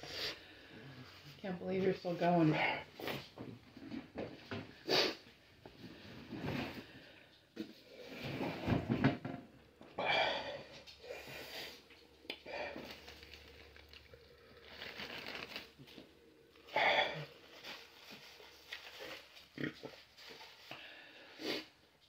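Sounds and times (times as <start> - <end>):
man huffing and wheezing: 16.7 - 17.4.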